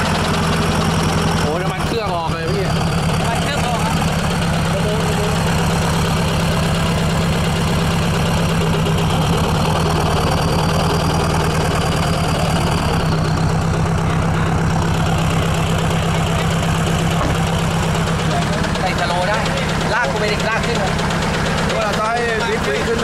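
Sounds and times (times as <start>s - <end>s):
pickup engine idling: 0.0s - 23.0s.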